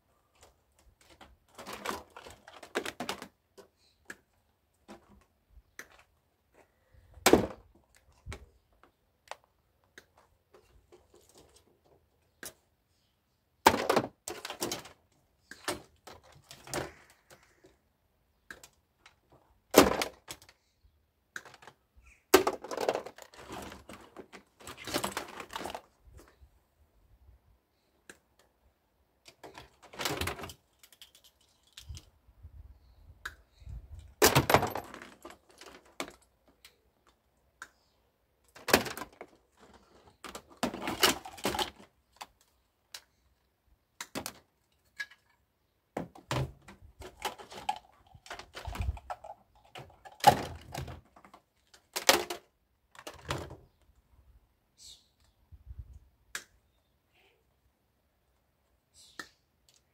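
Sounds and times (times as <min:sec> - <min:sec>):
plastic clatter: 0:00.4 - 0:04.2, 0:13.6 - 0:17.7, 0:21.3 - 0:26.4, 0:38.5 - 0:43.1, 0:46.0 - 0:53.7.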